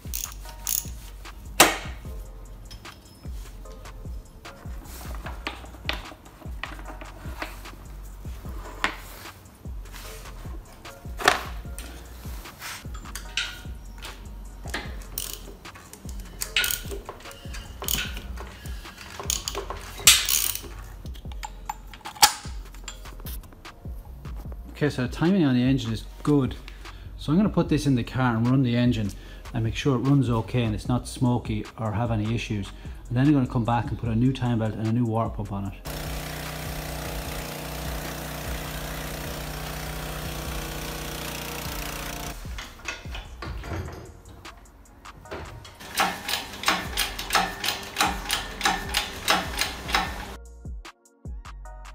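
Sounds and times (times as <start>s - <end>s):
socket ratchet clicking: 0.0s - 3.1s, 12.9s - 23.2s, 35.9s - 43.6s, 45.6s - 50.4s
pressure washer pump hum: 35.9s - 43.7s, 45.3s - 50.4s.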